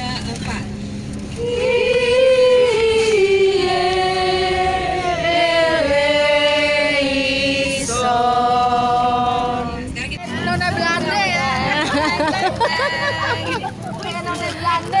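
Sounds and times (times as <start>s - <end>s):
voices singing held notes: 1.3s - 10.0s.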